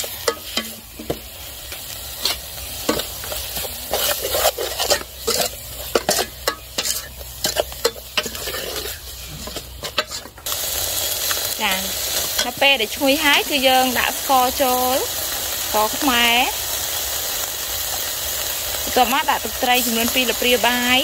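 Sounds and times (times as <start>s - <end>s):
utensil scraping a pan: 0.0s - 10.5s
food sizzling in hot oil: 0.0s - 21.0s.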